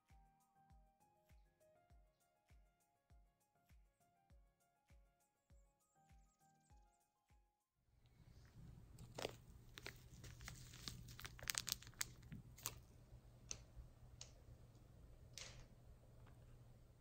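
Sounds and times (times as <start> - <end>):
crinkling and crunching: 8.4 - 12.9
sharp crackles: 9.2 - 12.8.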